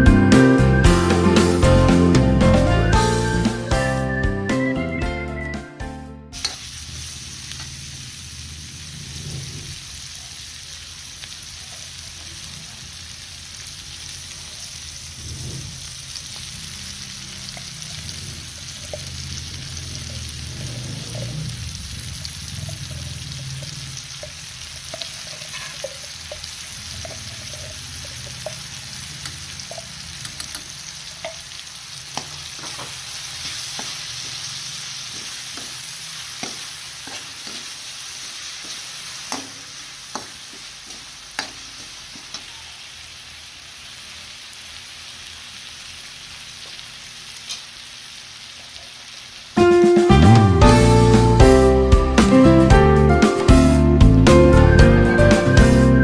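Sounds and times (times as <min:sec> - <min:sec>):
food sizzling in a wok: 0:06.3 - 0:53.8
metal spatula scraping wok: 0:17.3 - 0:31.5.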